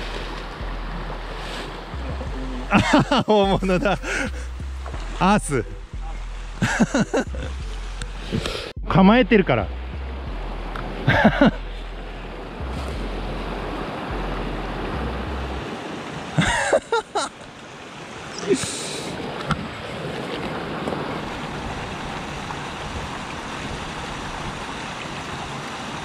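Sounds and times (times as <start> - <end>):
stream rushing over rocks: 10.6 - 26.0
wind rumbling on microphone: 19.1 - 26.0.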